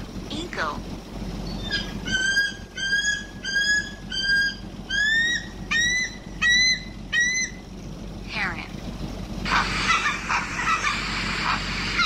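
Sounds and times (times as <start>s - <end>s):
eagle whistled calls: 1.4s - 7.6s.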